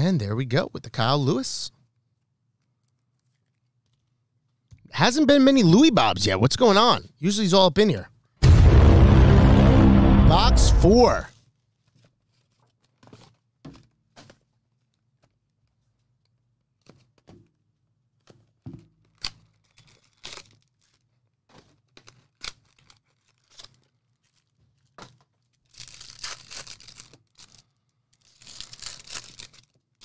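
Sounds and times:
wrapping rustling and clicking: 2.0s - 4.7s, 11.3s - 30.0s
wrapping tearing: 11.4s - 13.5s, 19.0s - 30.0s.

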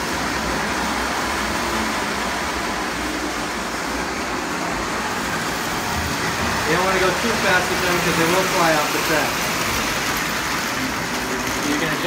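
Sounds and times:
model train running on track: 0.0s - 12.0s.

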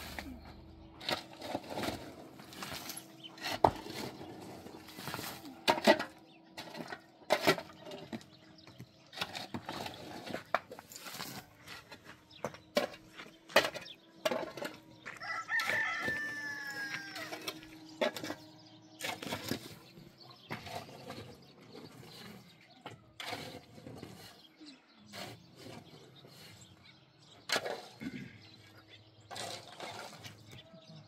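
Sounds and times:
rooster crowing: 15.1s - 17.6s.

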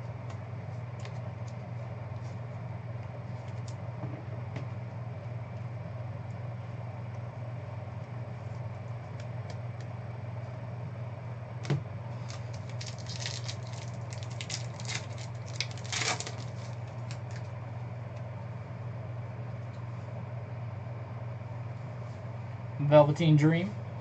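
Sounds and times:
steady low hum: 0.0s - 24.0s
foil wrapper crinkling: 12.1s - 17.5s
sharp wrapper snap: 12.3s - 17.5s.

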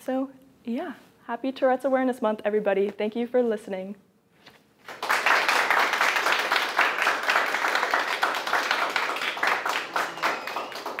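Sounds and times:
small audience clapping: 4.8s - 11.0s.

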